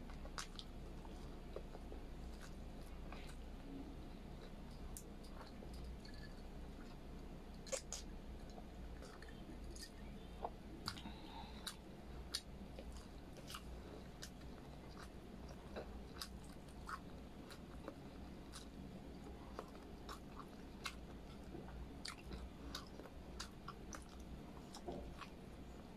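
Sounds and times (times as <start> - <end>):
person chewing food: 0.0 - 25.9.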